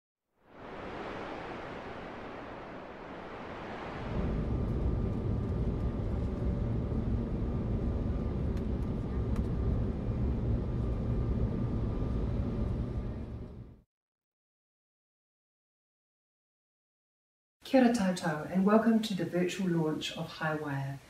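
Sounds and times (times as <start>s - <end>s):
faint high hum: 0.6s - 13.8s
low rumble: 0.6s - 13.8s.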